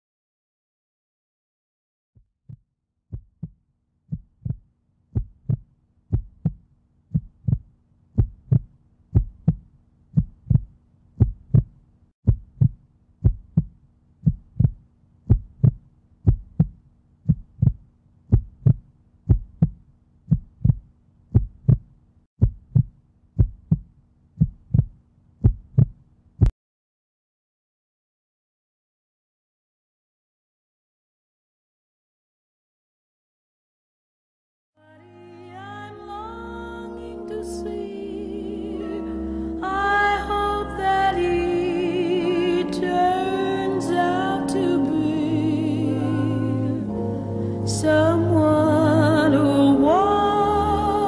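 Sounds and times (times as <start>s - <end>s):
heartbeat thumps: 2.2s - 26.5s.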